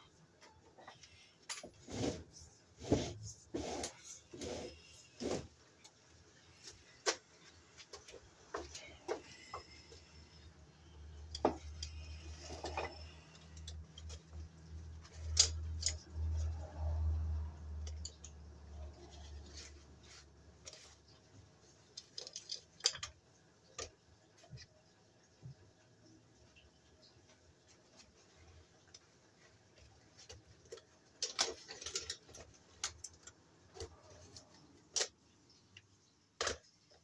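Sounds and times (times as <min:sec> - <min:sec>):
tools clicking and scraping: 0:07.9 - 0:21.2, 0:21.8 - 0:23.9, 0:30.2 - 0:35.2.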